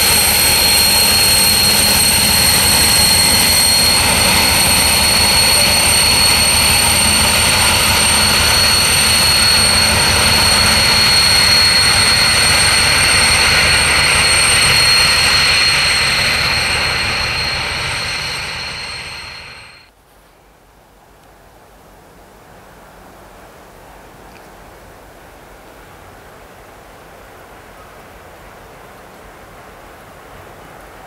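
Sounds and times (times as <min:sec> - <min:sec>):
diesel locomotive engine: 0:00.0 - 0:19.9
high-pitched whine: 0:00.0 - 0:19.9.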